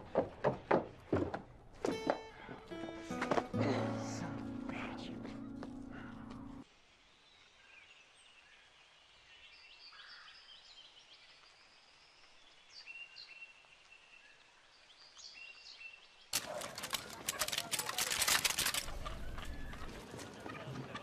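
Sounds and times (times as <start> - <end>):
bird calls and chirps: 7.2 - 16.7.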